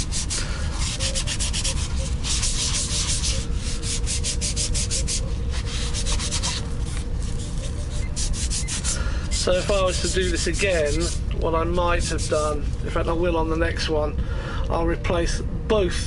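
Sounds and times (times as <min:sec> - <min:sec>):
hand sanding plastic: 0:00.0 - 0:12.8.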